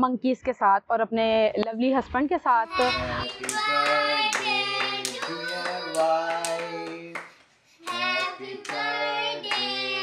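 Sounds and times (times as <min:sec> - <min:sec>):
family singing a celebration song: 0:02.6 - 0:10.0
hand claps: 0:03.2 - 0:10.0.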